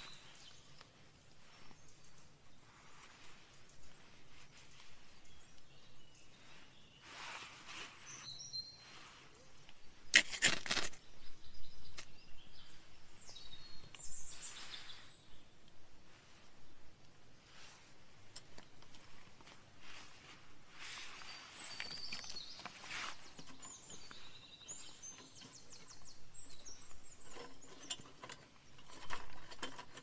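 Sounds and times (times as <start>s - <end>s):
small birds chirping: 0.0s - 30.0s
ferrocerium rod scraping: 10.1s - 11.0s, 20.8s - 30.0s.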